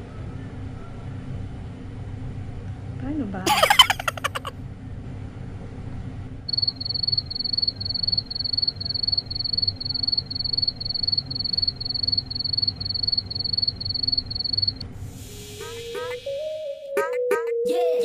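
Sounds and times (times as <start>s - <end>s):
low background hum: 2.1s - 15.2s
cricket chirping: 6.5s - 14.8s.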